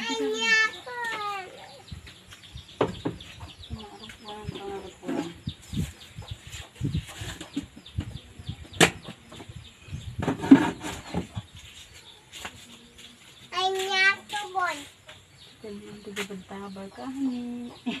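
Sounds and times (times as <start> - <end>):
chickens peeping: 0.0 - 18.0
knocks and rustles: 2.0 - 12.7.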